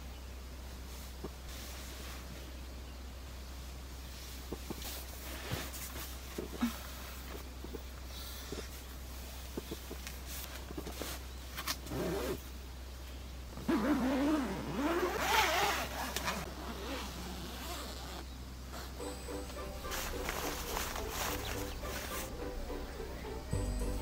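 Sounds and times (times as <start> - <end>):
zipper being pulled: 11.6 - 12.4, 13.6 - 19.0.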